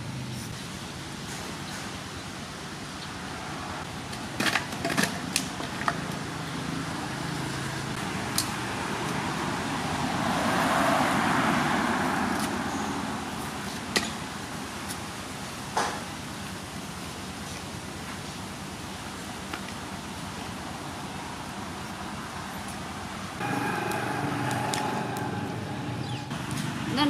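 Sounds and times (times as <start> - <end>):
steady background rush: 23.4 - 27.0.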